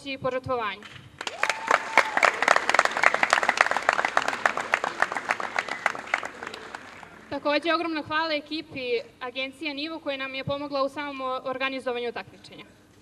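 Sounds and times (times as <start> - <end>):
crowd applauding: 1.2 - 7.4.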